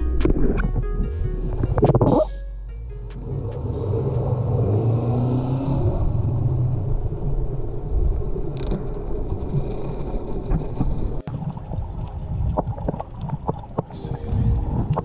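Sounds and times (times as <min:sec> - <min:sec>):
muffled underwater rumble: 0:05.9 - 0:15.0.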